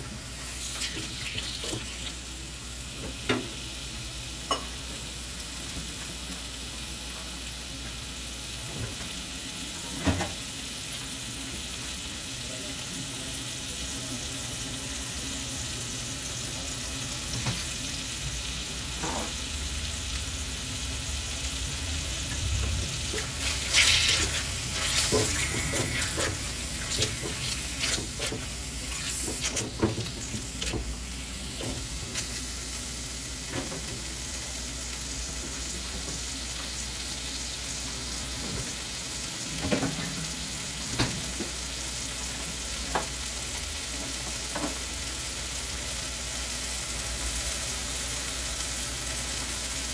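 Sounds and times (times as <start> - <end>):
food sizzling in a pan: 0.0 - 49.9
utensil scraping a pan: 23.1 - 30.9.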